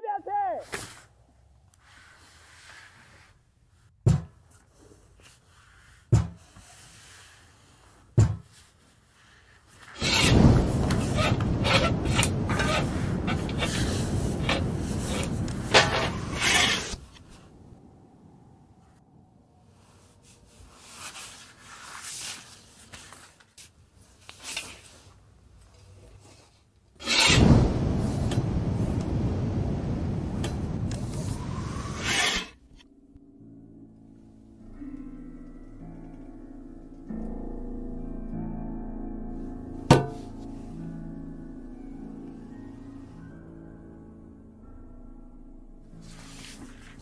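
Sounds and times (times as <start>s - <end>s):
sign scraping on concrete floor: 10.0s - 17.1s.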